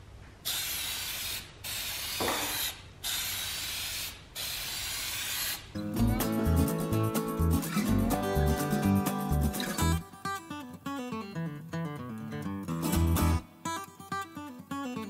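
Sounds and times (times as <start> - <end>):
spray paint can hissing: 0.4 - 10.0
acoustic guitar music: 5.8 - 15.0.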